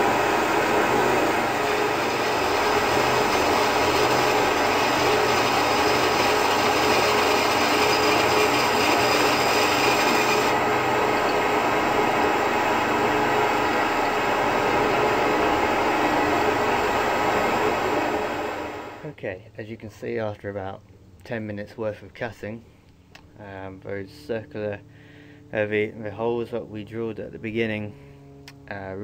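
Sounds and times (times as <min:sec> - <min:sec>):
bandsaw cutting board: 0:00.0 - 0:18.8.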